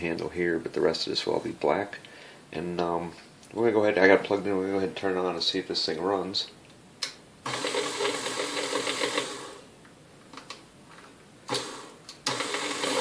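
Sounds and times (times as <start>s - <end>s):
stand mixer motor whining: 7.5s - 9.6s, 11.5s - 13.0s.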